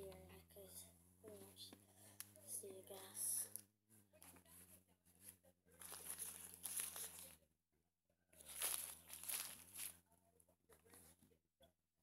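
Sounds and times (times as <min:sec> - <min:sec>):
diaper crinkling: 0:05.8 - 0:07.4, 0:08.4 - 0:10.0.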